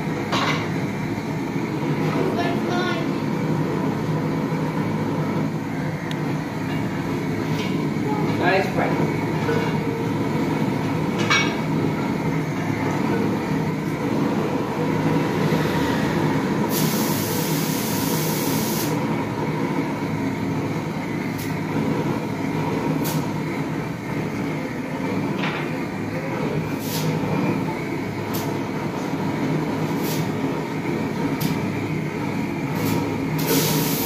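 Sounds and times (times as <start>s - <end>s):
gas torch roaring: 0.0s - 34.0s
high hiss burst: 16.7s - 19.0s, 33.4s - 34.0s.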